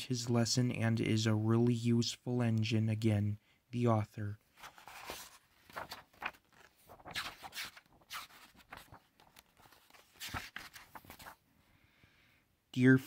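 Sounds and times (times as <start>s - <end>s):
book pages turning: 4.5s - 11.4s.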